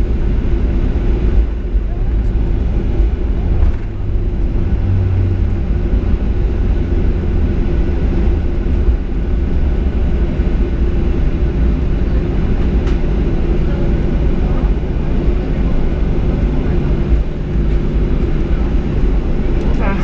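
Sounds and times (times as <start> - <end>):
low rumble of engines and wheels: 0.0 - 20.0.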